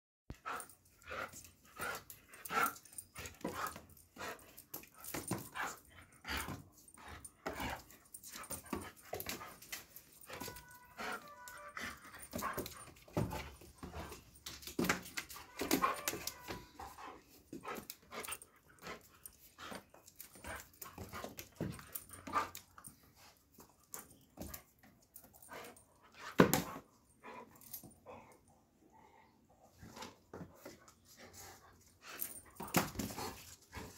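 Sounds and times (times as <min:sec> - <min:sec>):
dog whining: 0:10.2 - 0:12.7, 0:15.4 - 0:17.2.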